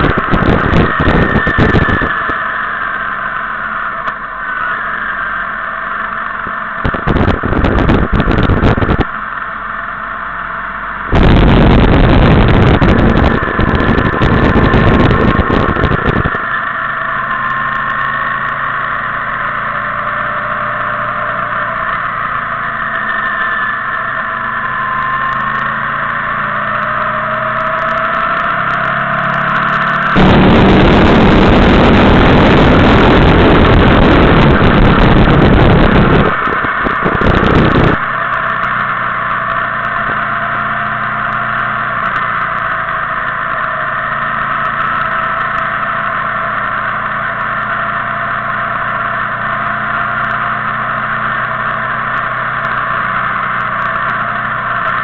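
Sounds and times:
wind rushing on microphone: 0.0 - 2.4, 6.8 - 9.2, 11.1 - 16.5, 29.4 - 38.2
motorcycle engine running: 0.0 - 55.0.

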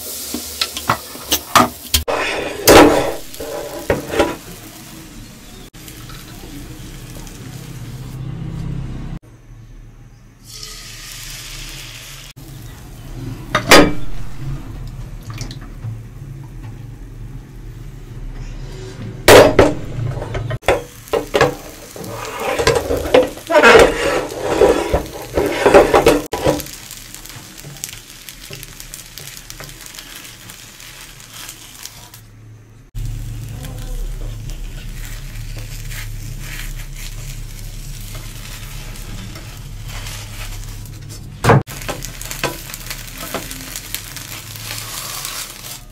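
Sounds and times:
frying pan knocking: 19.3 - 26.7
utensils clattering and scraping: 20.2 - 26.7.

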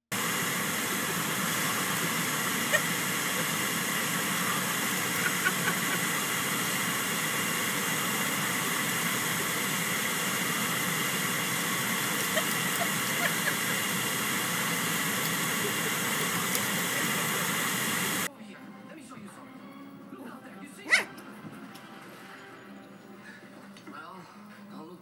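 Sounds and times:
air blowing from car vent: 0.1 - 18.3.

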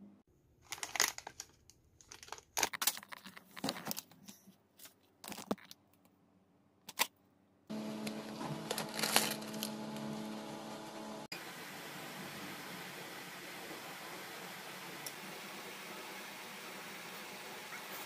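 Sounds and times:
plastic packets crinkling: 0.6 - 4.4, 8.0 - 9.8.

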